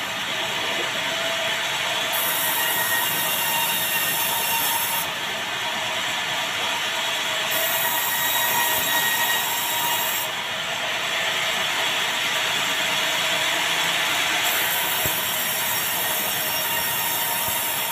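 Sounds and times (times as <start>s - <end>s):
band saw cutting timber: 1.1s - 5.2s, 6.7s - 10.4s, 12.7s - 17.9s.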